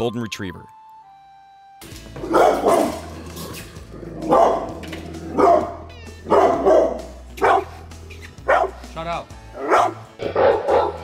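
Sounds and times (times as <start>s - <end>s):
dog barking deeply: 2.2s - 3.2s, 3.9s - 7.8s, 8.5s - 8.8s, 9.6s - 11.0s.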